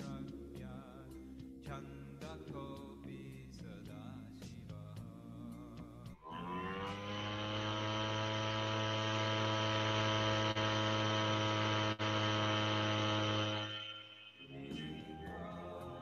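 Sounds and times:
long held note: 6.2s - 15.9s.

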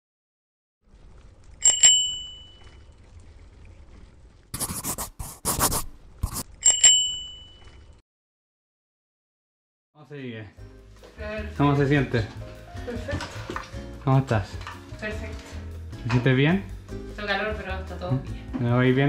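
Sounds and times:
bicycle bell ringing: 1.6s - 2.6s, 6.6s - 7.7s.

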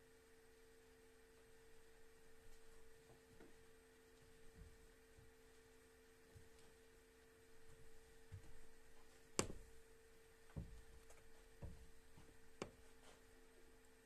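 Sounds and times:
steady hum: 0.0s - 14.0s
dull thumps: 8.3s - 9.8s, 10.5s - 13.2s.

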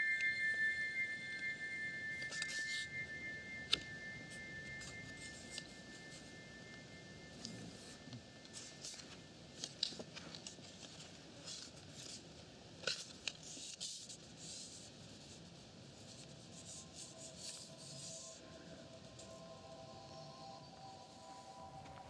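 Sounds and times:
faint steady tones: 0.0s - 22.0s.

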